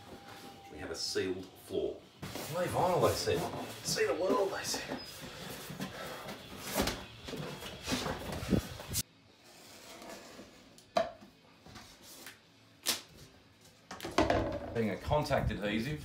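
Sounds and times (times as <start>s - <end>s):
vinyl flooring rustling and scraping: 2.2s - 10.8s.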